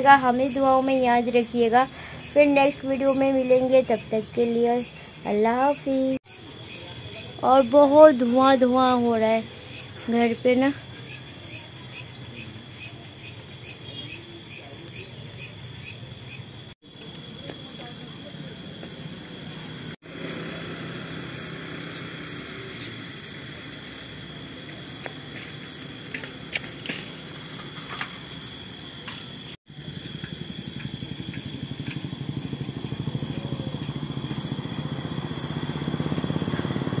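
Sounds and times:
insect chirps: 0.0s - 37.0s
insects trilling: 0.0s - 37.0s
vehicle engine pulsing: 29.7s - 37.0s.

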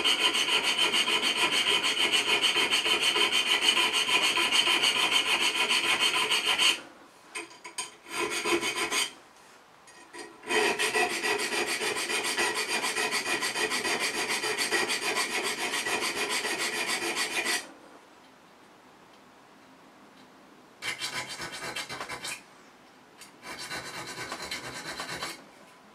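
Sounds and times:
file rasping on steel: 0.0s - 6.8s, 8.0s - 9.2s, 10.2s - 17.7s, 20.8s - 22.4s, 23.4s - 25.4s.

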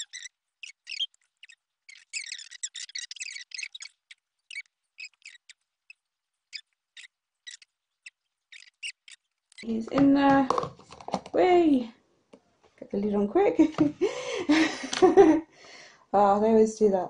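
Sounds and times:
plastic tub being handled: 9.6s - 11.8s.

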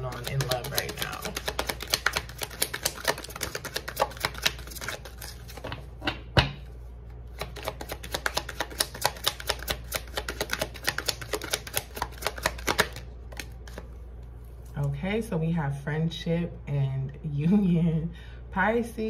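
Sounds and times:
cards being shuffled: 0.0s - 5.9s, 7.3s - 14.7s.

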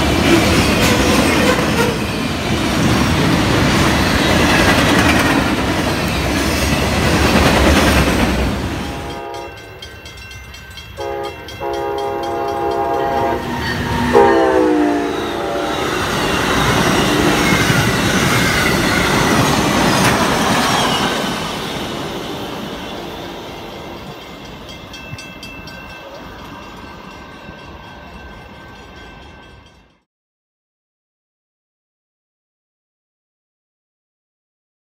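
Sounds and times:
train wheels rumbling on rails: 0.0s - 30.0s
locomotive air horn blasts: 8.8s - 9.7s, 11.0s - 17.6s.

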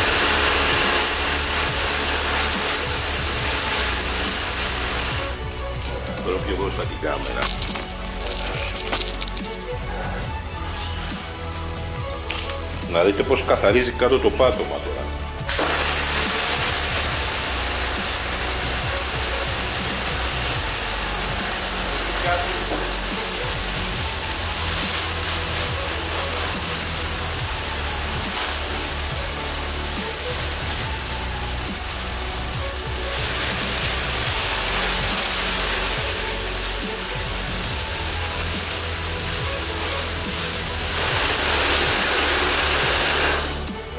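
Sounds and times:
pump motor humming: 0.0s - 5.4s, 15.4s - 43.8s
pressure washer spraying water: 0.0s - 12.9s, 15.2s - 43.9s.

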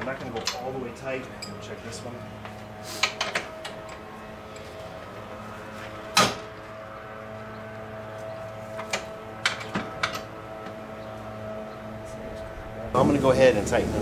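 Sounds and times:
steady low hum: 0.0s - 14.0s
tools clicking and tapping: 2.4s - 4.7s.

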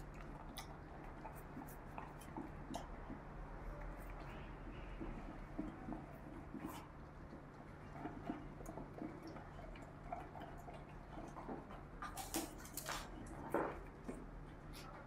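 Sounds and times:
dog crunching food: 0.0s - 3.3s, 5.6s - 14.2s
dog chewing: 0.0s - 15.0s.

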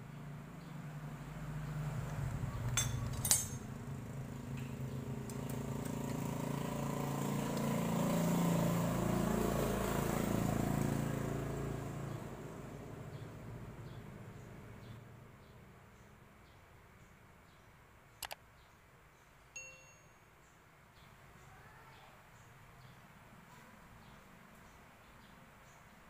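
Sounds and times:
vehicle engine: 0.0s - 16.5s
wrench clinking on metal bolts: 2.7s - 3.7s.

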